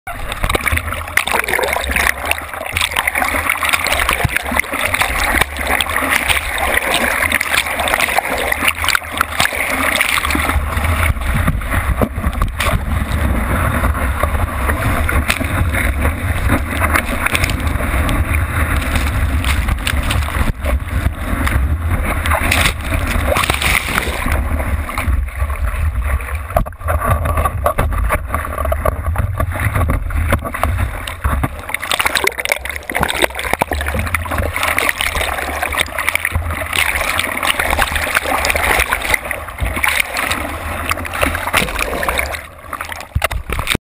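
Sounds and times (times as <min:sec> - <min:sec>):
low rumble of buffeting water: 0:00.1 - 0:43.8
water rushing and splashing: 0:00.1 - 0:43.8.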